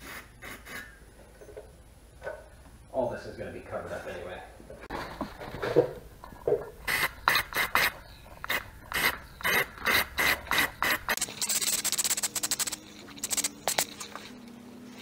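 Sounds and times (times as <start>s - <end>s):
spray paint can hissing: 8.5s - 14.2s
spray can rattle: 9.9s - 14.3s.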